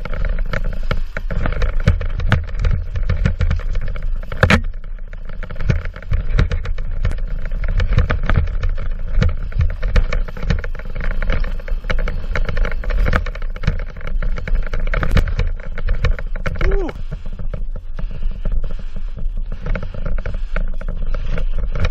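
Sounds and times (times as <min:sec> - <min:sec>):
bike rattling over rocks: 0:00.0 - 0:21.9
wind on microphone: 0:00.0 - 0:21.9.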